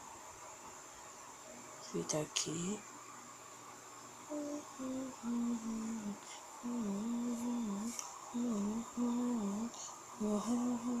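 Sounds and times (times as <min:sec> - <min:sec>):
person humming: 0:04.3 - 0:11.0.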